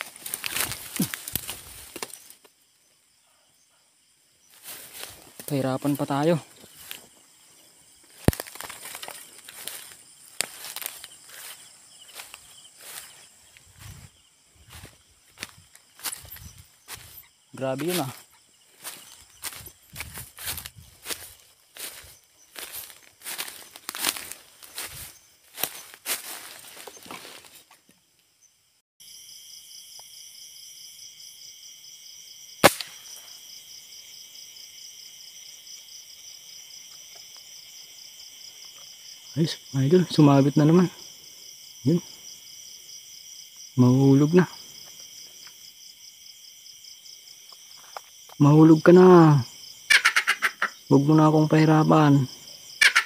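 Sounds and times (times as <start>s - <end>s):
footsteps through dry grass: 0.0s - 2.4s, 4.5s - 27.8s
night insects droning: 0.0s - 53.0s
airgun shot crack: 32.6s - 33.1s.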